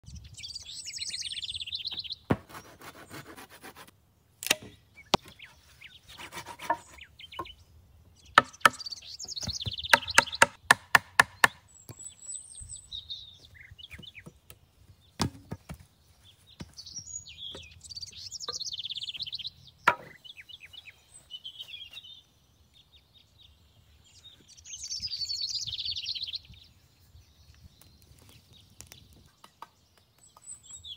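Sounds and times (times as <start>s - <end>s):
songbirds chirping: 0.0s - 30.9s
chopping blows on wood: 2.3s - 2.7s, 9.4s - 11.6s, 15.2s - 15.8s.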